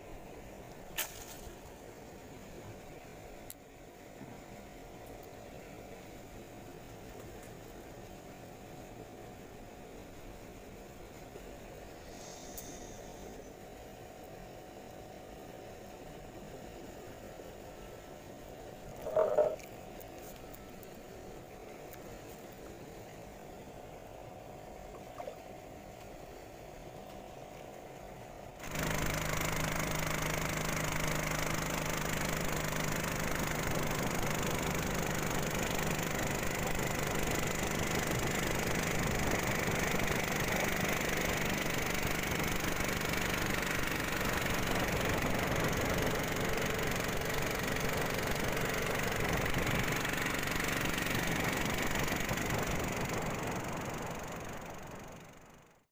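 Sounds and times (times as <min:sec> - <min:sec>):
small boat engine running: 0:18.7 - 0:19.7, 0:28.4 - 0:55.9.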